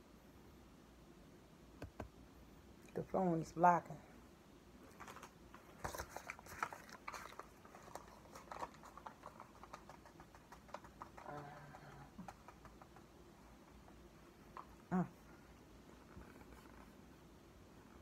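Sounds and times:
plastic bag crinkling: 4.9s - 12.6s.

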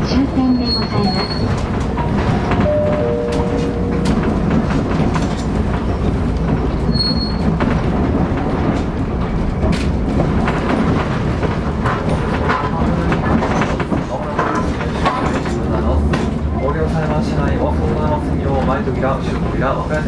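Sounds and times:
tram motors and wheels rumbling: 0.0s - 20.0s
wheel squeal: 0.4s - 1.6s, 6.9s - 7.6s.

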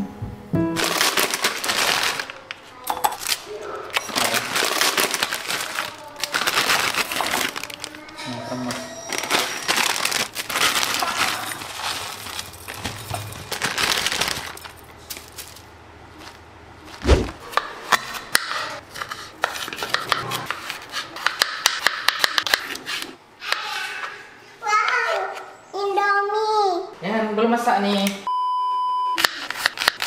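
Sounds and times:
plastic packets crinkling: 0.8s - 17.0s.

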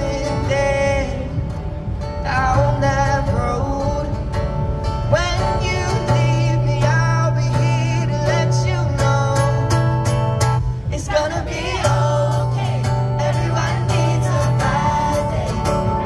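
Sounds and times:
man singing: 0.0s - 1.5s, 2.2s - 4.3s, 5.0s - 9.9s
acoustic guitar: 0.0s - 16.0s.

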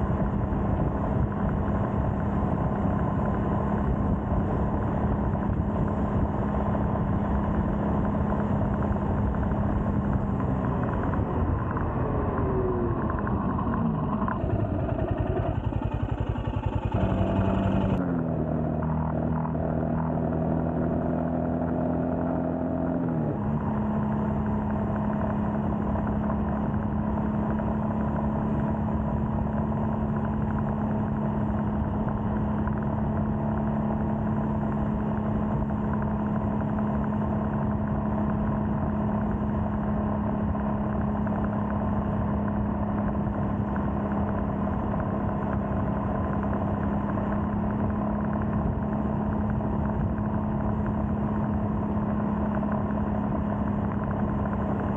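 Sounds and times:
road noise rushing: 0.0s - 25.7s
motorcycle engine cruising: 0.0s - 54.9s.

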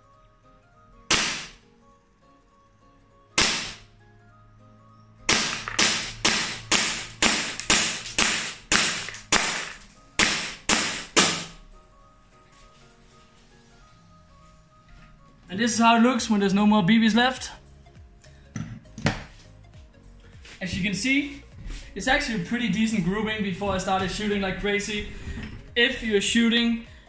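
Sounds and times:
airsoft pistol shots: 1.1s - 1.6s, 3.4s - 3.9s, 5.3s - 11.6s.

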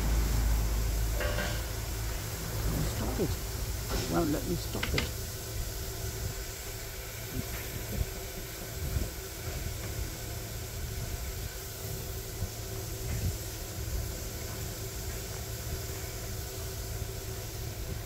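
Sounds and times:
low rumble: 0.0s - 3.9s
steam hissing: 0.0s - 18.0s.

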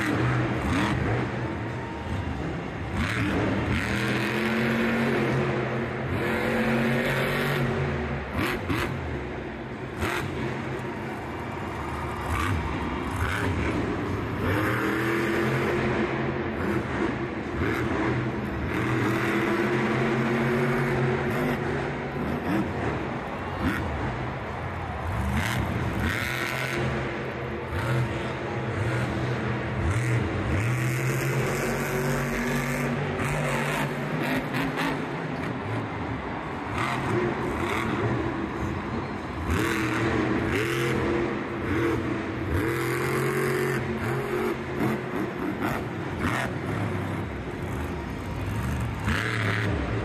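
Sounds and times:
truck engine revving hard: 0.0s - 10.9s, 11.8s - 50.0s.

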